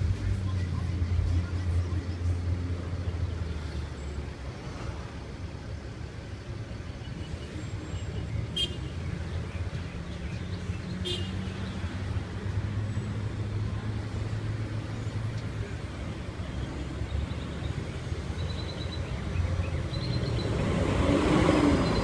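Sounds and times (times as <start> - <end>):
vehicle engines idling: 0.0 - 22.0.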